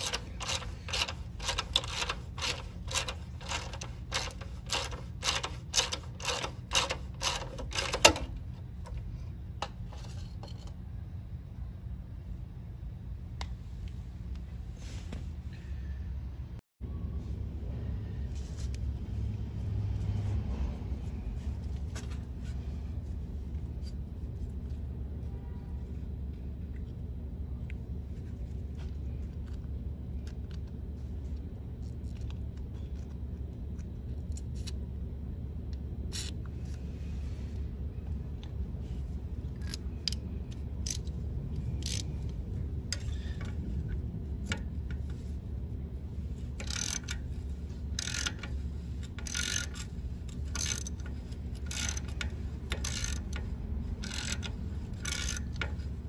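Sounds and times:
socket ratchet clicking: 0:00.0 - 0:08.4, 0:39.6 - 0:42.3, 0:46.6 - 0:55.9
steady low hum: 0:00.0 - 0:56.0.

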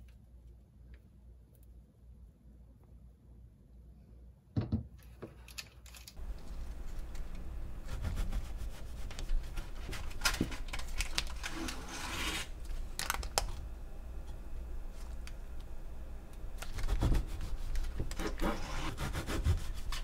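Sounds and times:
knife sawing through frozen slab: 0:18.2 - 0:20.0.

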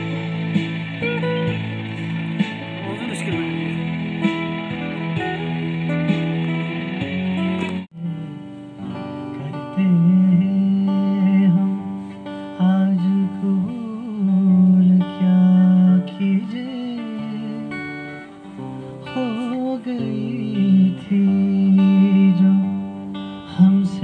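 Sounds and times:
acoustic guitar: 0:00.0 - 0:24.0
man singing: 0:02.8 - 0:04.0, 0:07.9 - 0:18.2, 0:19.0 - 0:24.0.

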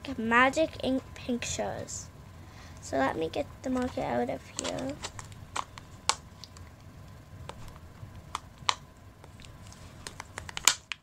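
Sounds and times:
plastic packaging clicks and crinkles: 0:03.8 - 0:06.7, 0:07.6 - 0:11.0.

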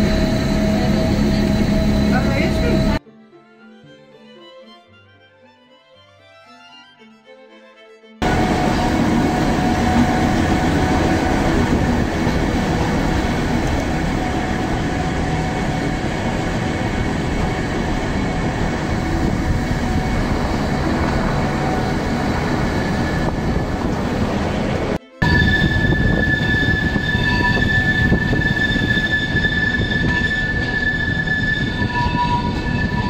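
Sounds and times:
train wheels rumbling: 0:08.2 - 0:33.0.

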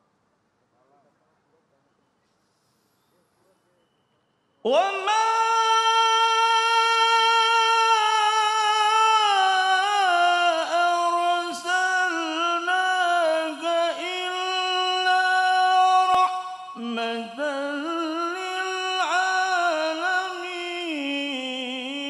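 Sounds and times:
man chanting melodically: 0:04.7 - 0:22.0.

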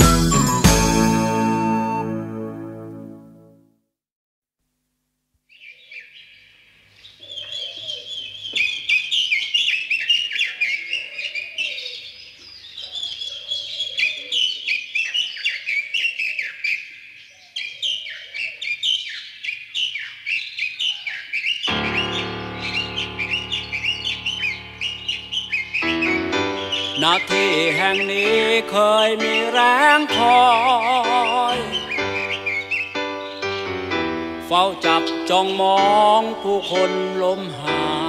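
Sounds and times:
low bird call: 0:05.5 - 0:33.9
small birds chirping: 0:05.5 - 0:38.0.

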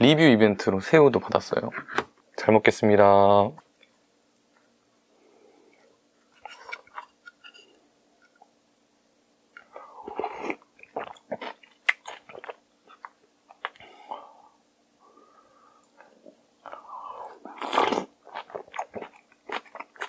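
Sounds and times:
crunchy chewing: 0:09.6 - 0:13.9, 0:15.9 - 0:20.0.

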